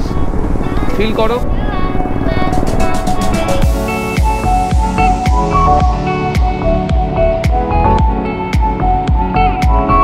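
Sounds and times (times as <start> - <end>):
background music with beat: 2.3 - 10.0.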